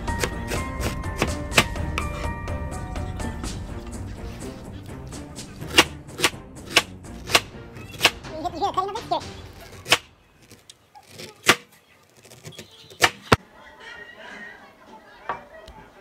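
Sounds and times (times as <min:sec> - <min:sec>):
knife chopping on cutting board: 0:00.0 - 0:02.3, 0:05.6 - 0:08.2.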